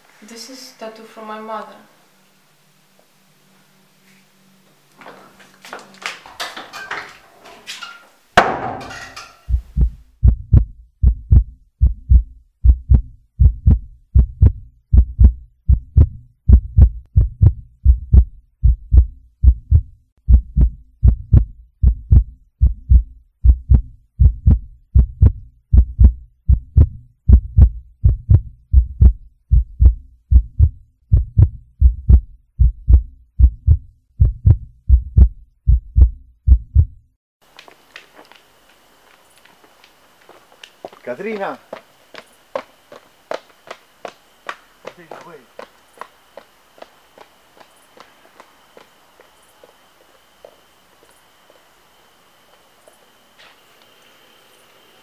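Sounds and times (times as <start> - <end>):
heartbeat thumps: 9.5 - 37.0.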